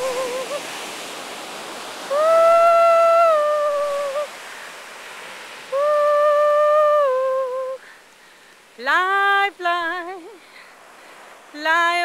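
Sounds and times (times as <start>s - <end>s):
woman singing long notes: 0.0s - 0.6s, 2.1s - 4.4s, 5.7s - 7.8s, 8.8s - 10.4s, 11.6s - 12.0s
surf hissing: 0.0s - 12.0s.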